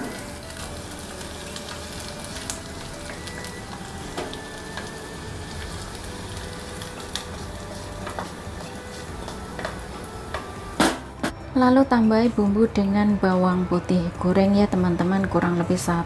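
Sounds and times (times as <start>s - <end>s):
hot oil sizzling: 0.0s - 11.2s.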